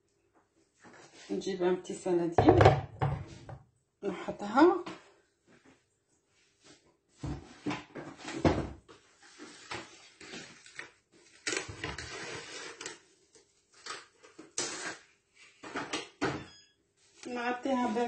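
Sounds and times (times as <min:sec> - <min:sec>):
knocks and thuds: 0:02.4 - 0:03.6.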